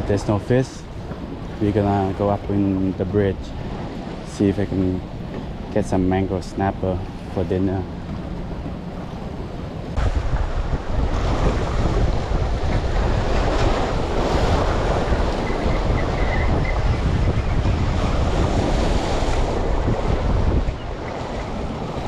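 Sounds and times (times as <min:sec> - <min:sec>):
wind buffeting microphone: 0:00.0 - 0:22.0
waves breaking over rocks: 0:09.9 - 0:22.0.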